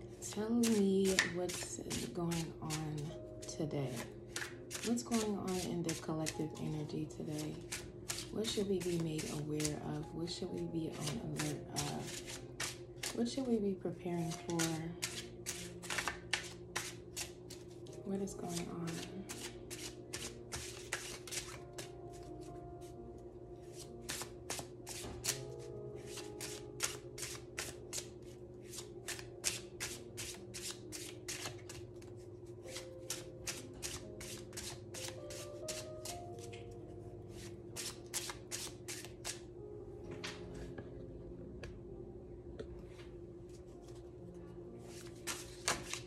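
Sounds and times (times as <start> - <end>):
cards being shuffled: 0.3 - 3.2, 3.9 - 6.5, 7.2 - 13.4, 14.2 - 22.6, 23.7 - 36.7, 37.3 - 39.4, 44.9 - 46.0.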